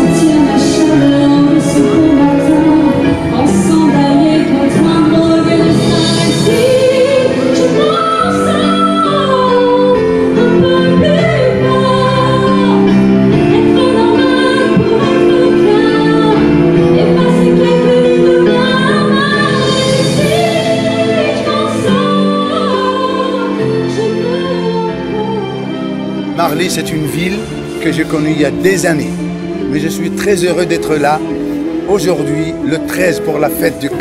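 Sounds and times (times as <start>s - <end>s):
woman singing slow melody: 0.0s - 26.1s.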